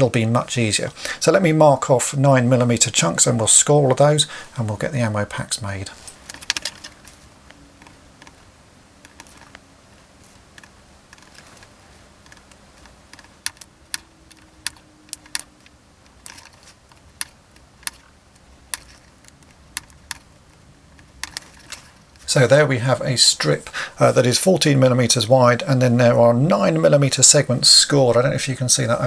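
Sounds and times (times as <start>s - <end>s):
craft knife scoring plastic: 6.0s - 22.3s.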